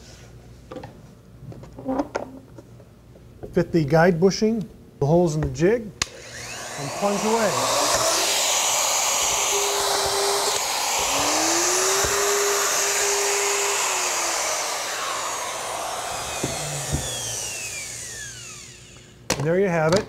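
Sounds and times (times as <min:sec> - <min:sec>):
router whining: 0:06.0 - 0:19.3.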